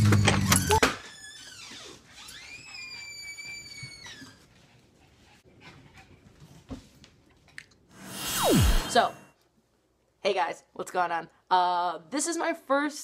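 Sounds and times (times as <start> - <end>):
dog whining: 1.4 - 4.4.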